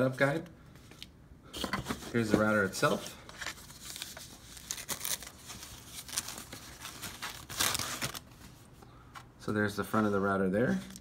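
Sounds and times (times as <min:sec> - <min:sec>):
foam packing sleeve rustling: 0:02.1 - 0:08.7.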